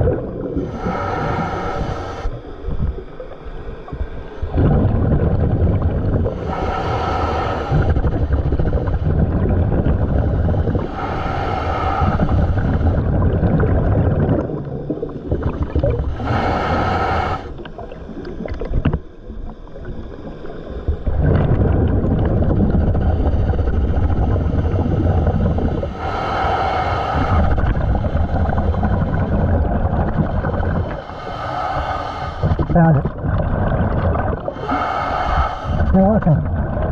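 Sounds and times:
rumbling exhaust bubbles: 0.0s - 1.6s, 3.9s - 19.1s, 20.9s - 36.9s
regulator hissing inhalations: 0.6s - 2.4s, 6.3s - 9.0s, 10.5s - 13.1s, 16.0s - 17.6s, 23.0s - 29.4s, 30.3s - 32.7s, 34.5s - 36.0s.

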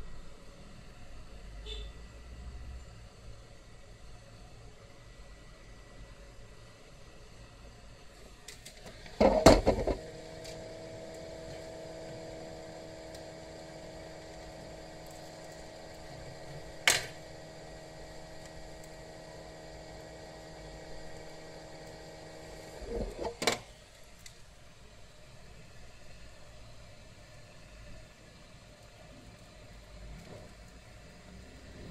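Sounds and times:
electric motor humming: 8.9s - 23.4s.

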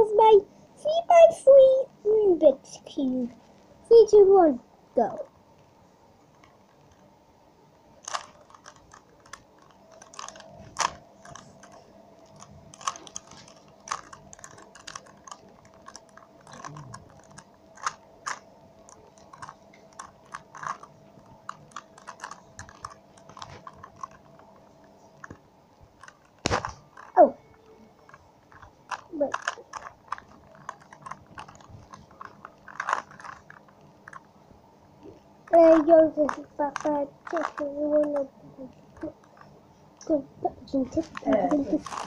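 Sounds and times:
puzzle cube layers clicking: 8.0s - 24.4s, 28.1s - 34.3s, 35.5s - 38.3s, 41.0s - 42.0s.

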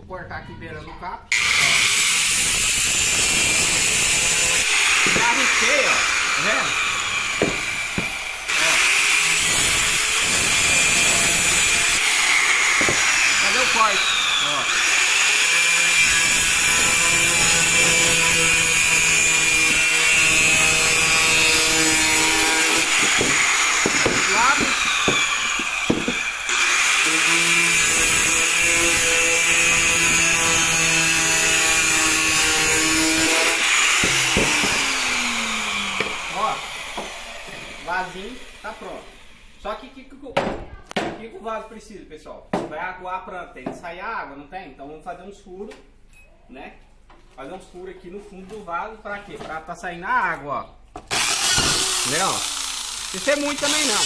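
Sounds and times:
disc saw cutting plastic pipe: 1.3s - 38.7s, 51.1s - 54.0s.

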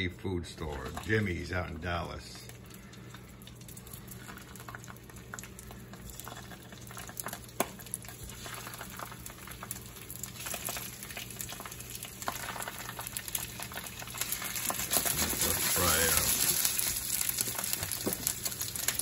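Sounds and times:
oil sizzling and crackling: 0.6s - 19.0s.

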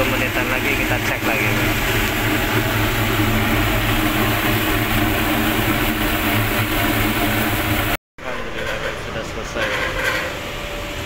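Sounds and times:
furnace burner and blower drone: 0.0s - 11.0s.

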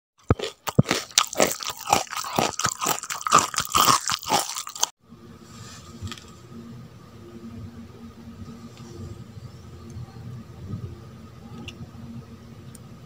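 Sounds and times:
crunchy chewing: 0.2s - 5.0s.

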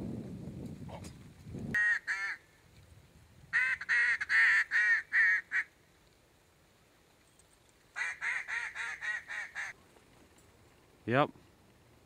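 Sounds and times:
duck call quacks: 1.8s - 2.4s, 3.6s - 5.7s, 8.0s - 9.7s.

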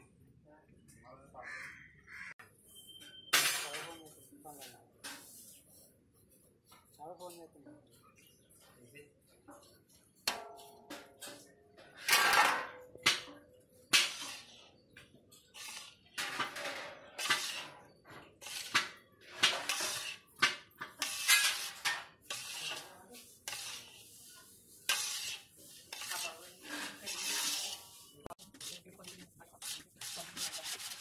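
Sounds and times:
metal spatula scraping metal pan: 10.3s - 31.0s.

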